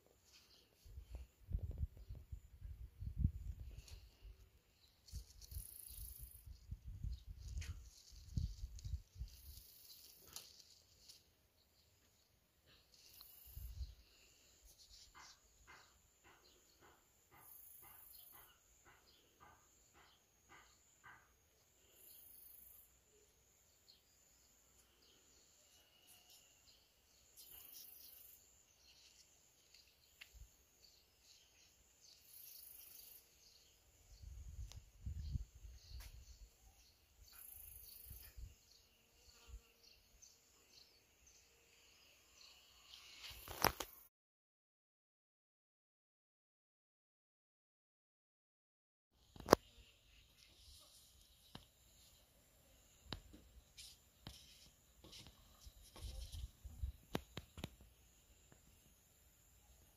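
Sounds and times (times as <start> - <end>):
insect high buzz: 4.9 - 6.8, 7.4 - 11.4, 12.9 - 15.9, 21.1 - 34.9, 37.2 - 44.1
insect short chirps: 4.9 - 11.2.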